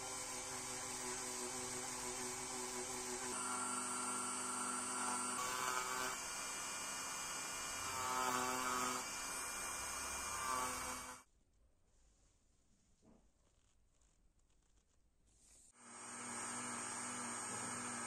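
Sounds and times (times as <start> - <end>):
rotary tool whining on metal: 0.0 - 11.2, 15.8 - 18.0.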